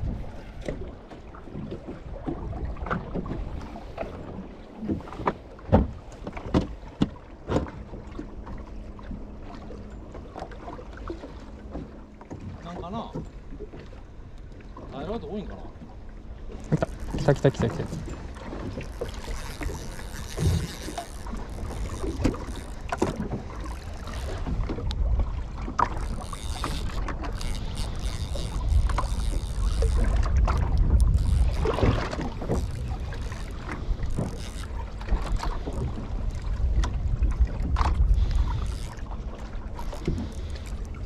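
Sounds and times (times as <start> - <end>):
water slapping boat hull: 0.0 - 41.0
wind buffeting microphone: 16.4 - 41.0.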